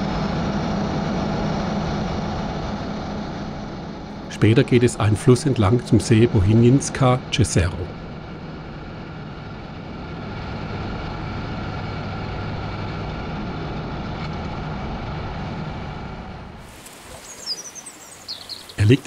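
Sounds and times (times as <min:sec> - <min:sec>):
road noise: 0:00.7 - 0:19.0
quiet outdoor background: 0:04.1 - 0:10.0, 0:16.3 - 0:19.0.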